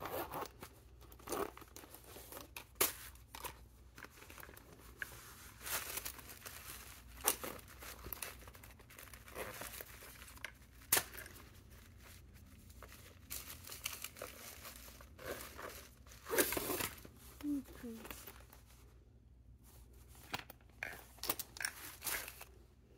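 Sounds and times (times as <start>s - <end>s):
tissue paper crinkling: 4.0s - 18.9s.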